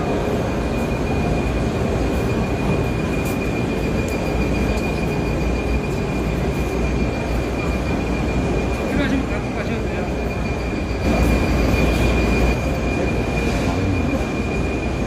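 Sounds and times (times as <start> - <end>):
industrial machinery rumble and hiss: 0.0 - 15.0
thin high whine: 0.0 - 15.0.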